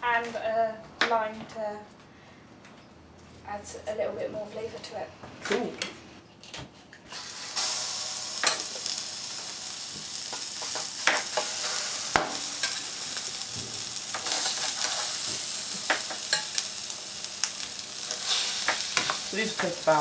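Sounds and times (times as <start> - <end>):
patties sizzling in oil: 7.1 - 20.0.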